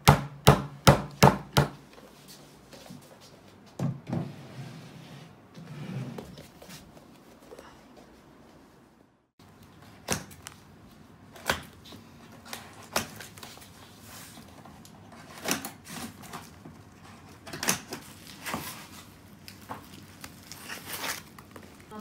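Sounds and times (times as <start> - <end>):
tape and cardboard rustling: 9.5 - 22.0.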